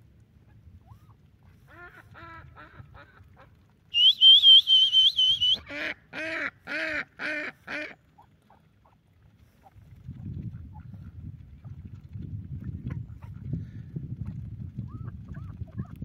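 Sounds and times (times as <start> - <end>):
high warbling whistle: 4.0 - 5.6
ducks quacking: 5.6 - 9.0.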